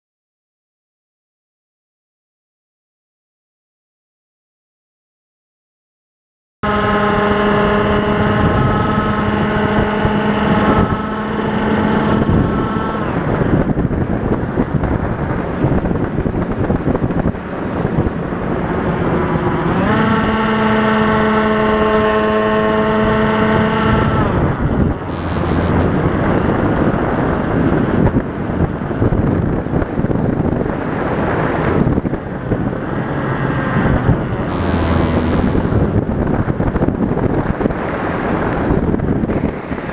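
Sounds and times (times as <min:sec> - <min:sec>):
wind rushing over microphone: 0:06.6 - 0:39.9
model plane motor humming: 0:18.4 - 0:26.3, 0:33.2 - 0:36.1.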